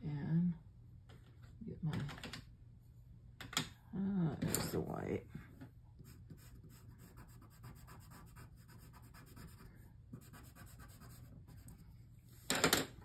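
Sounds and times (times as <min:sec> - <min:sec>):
pencil scratching on paper: 0:06.0 - 0:11.9.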